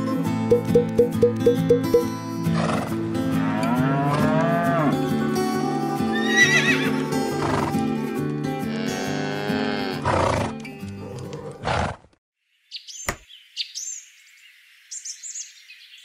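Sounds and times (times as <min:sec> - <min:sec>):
background music: 0:00.0 - 0:11.5
cow mooing: 0:03.2 - 0:07.7, 0:08.6 - 0:10.4.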